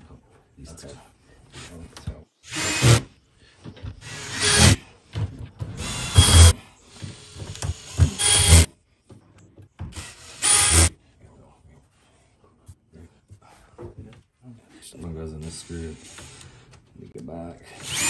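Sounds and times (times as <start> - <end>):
cordless drill spinning nuts: 2.5 - 3.1, 4.0 - 4.8, 5.8 - 8.7, 9.9 - 10.9, 15.4 - 16.7, 17.7 - 18.0.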